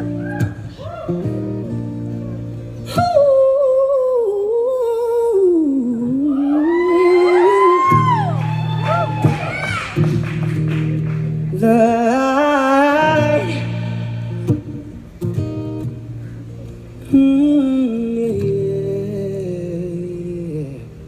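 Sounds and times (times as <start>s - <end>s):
acoustic guitar: 0.0s - 21.0s
person singing wordlessly: 2.9s - 8.1s, 11.5s - 14.3s, 17.0s - 21.0s.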